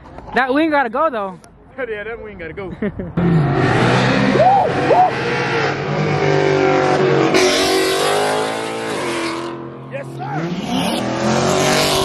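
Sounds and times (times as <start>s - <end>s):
car driving by: 3.1s - 12.0s
car engine accelerating hard: 3.2s - 12.0s.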